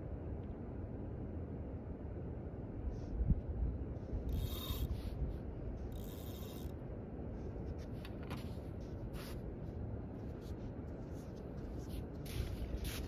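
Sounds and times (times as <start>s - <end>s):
wind: 0.0s - 13.0s
scraping rustling sounds: 7.4s - 13.0s.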